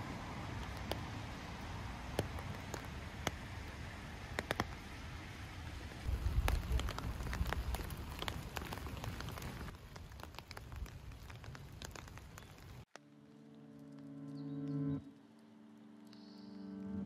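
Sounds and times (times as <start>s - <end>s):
rain hiss: 0.0s - 12.9s
raindrops ticking near microphone: 0.0s - 16.6s.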